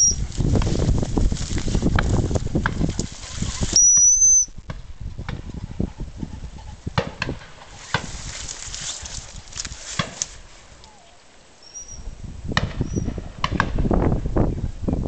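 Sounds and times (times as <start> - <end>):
footsteps crunching dry grass: 0.0 - 5.4, 7.3 - 11.1
rustles and snaps in vegetation: 0.0 - 5.4, 6.9 - 11.5
high-pitched whistle blast: 3.8 - 4.5.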